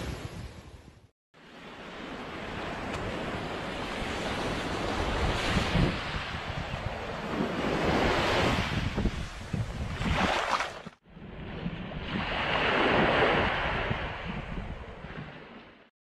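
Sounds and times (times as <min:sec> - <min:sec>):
small waves washing on sand: 0:01.4 - 0:15.6
wind buffeting microphone: 0:02.9 - 0:10.5, 0:11.2 - 0:15.6.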